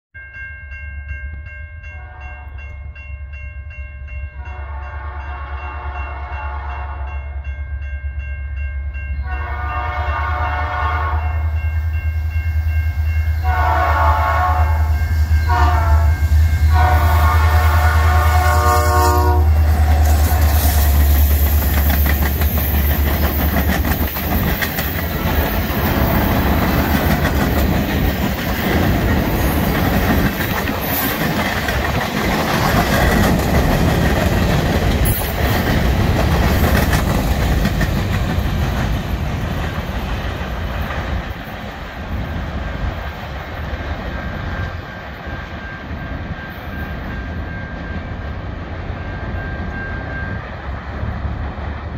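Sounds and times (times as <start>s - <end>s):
locomotive horn blasts: 2.0s - 2.6s, 4.4s - 7.4s, 9.2s - 11.6s, 13.4s - 20.9s
train wheels clattering on rails: 19.5s - 51.9s.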